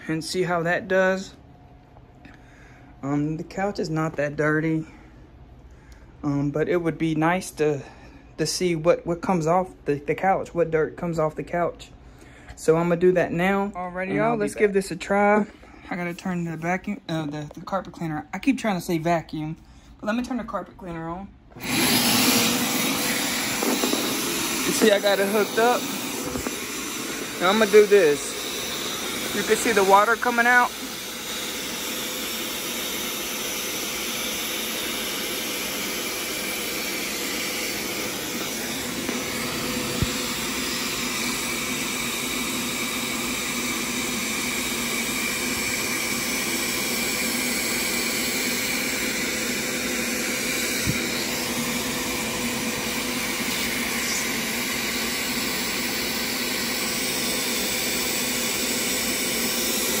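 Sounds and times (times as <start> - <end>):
carpet cleaner motor whine: 21.5 - 60.0.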